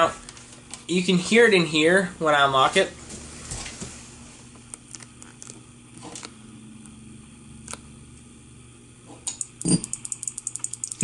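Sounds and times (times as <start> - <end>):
keypad buttons clicking: 9.3 - 11.0
light ticking: 9.3 - 11.0.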